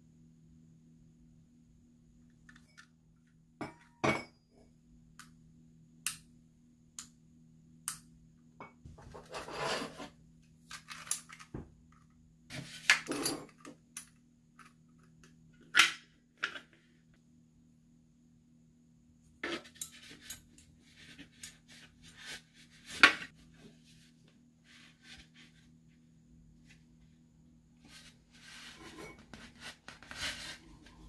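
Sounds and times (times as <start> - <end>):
faint low hum: 0.0 - 31.0
metal parts clicking and clinking: 10.7 - 11.5.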